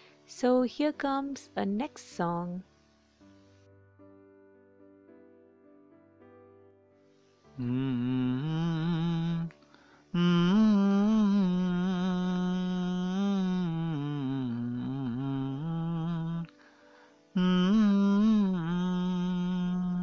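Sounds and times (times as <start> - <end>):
person humming a slow melody: 7.5 - 20.0.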